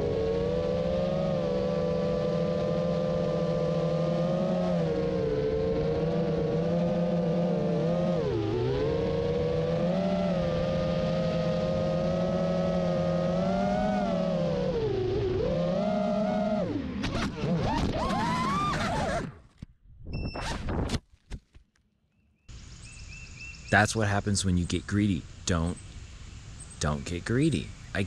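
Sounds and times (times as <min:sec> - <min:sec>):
drone motors and propellers whining: 0:00.0 - 0:21.0.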